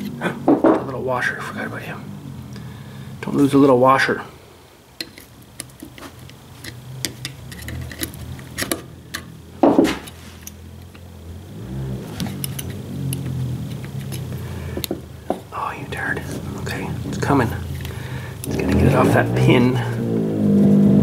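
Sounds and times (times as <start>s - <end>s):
low steady hum: 0.0s - 21.0s
small metal parts clicking: 5.0s - 9.3s, 12.2s - 15.0s.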